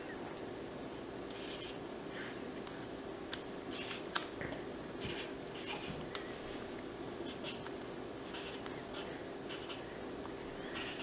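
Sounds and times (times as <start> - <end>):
marker scratching on paper: 0.9 - 1.8, 3.7 - 4.1, 5.0 - 6.0, 7.2 - 7.7, 8.3 - 9.8, 10.8 - 11.0.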